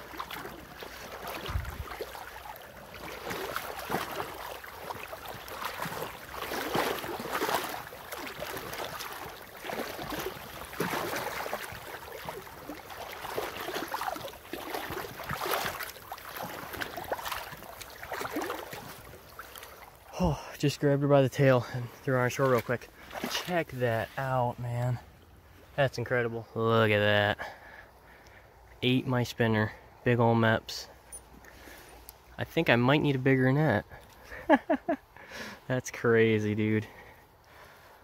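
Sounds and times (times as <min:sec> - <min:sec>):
fish thrashing and splashing: 0:00.0 - 0:20.2, 0:22.4 - 0:23.5
river current sloshing: 0:00.0 - 0:26.1.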